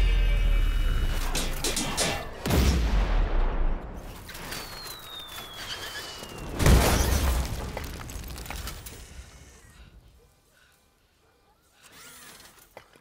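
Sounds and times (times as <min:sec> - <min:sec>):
crackling debris: 0:03.7 - 0:10.0
falling whistle: 0:04.5 - 0:06.6.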